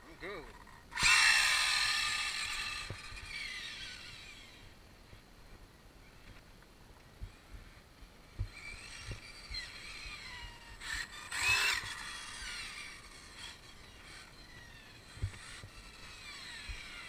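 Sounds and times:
electric motor whining: 0.9 - 4.8, 8.3 - 17.0.

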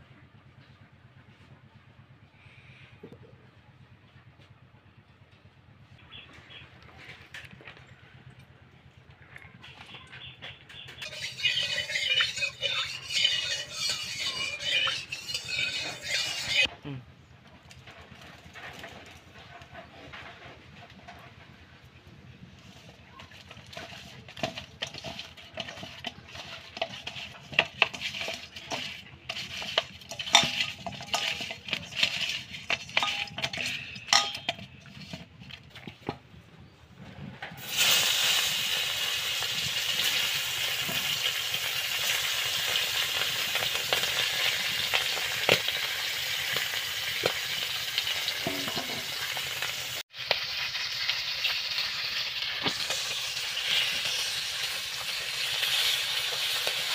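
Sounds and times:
wet squelches of mixing fish: 9.3 - 16.7, 22.6 - 36.2
metal spatula scraping: 9.9 - 16.7, 22.6 - 36.2, 37.6 - 50.0
fish sizzling in hot oil: 11.0 - 16.7, 37.6 - 56.9.

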